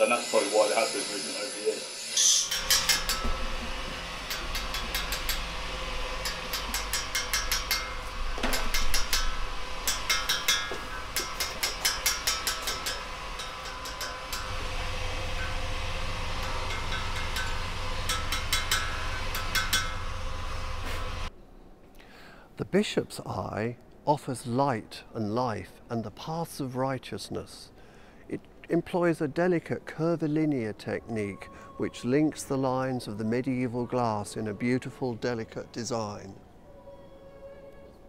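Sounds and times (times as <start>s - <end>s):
low workshop hum: 0.0s - 38.0s
mallet tapping steel chisel: 2.4s - 21.3s.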